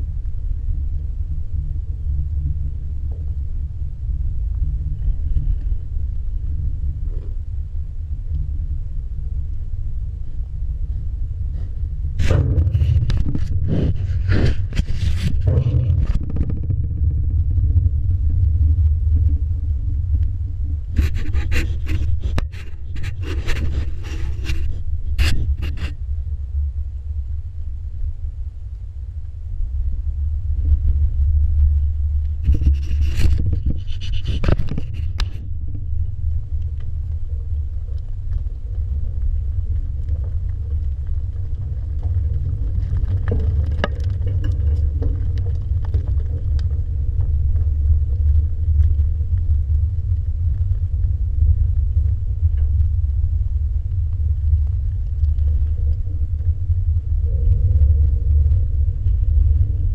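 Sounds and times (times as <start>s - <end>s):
low rumble: 0.0s - 59.9s
scraping and knocking on camera: 10.9s - 18.0s, 20.9s - 26.0s, 30.6s - 50.0s.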